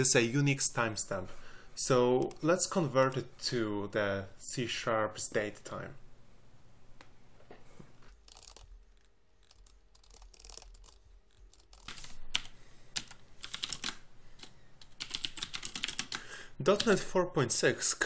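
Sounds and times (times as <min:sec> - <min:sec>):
typing on computer keyboard: 0:09.4 - 0:17.0.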